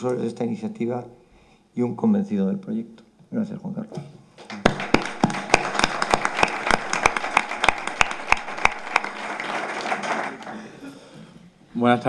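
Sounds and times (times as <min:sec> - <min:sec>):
loud single person clapping: 0:04.4 - 0:10.6
audience applauding: 0:04.4 - 0:10.8.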